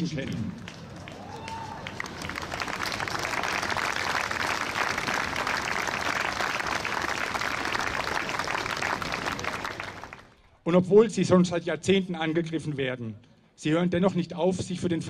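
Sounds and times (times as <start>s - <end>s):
large crowd applauding: 0.6s - 10.4s.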